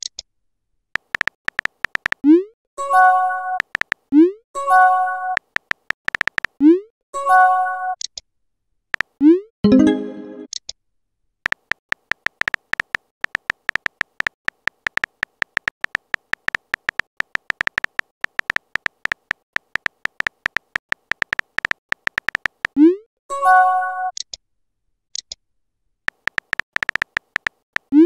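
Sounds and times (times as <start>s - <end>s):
rapid keyboard tapping: 1.0s - 2.2s, 3.6s - 4.1s, 5.4s - 6.6s, 9.0s - 9.2s, 11.4s - 22.8s, 26.1s - 28.0s.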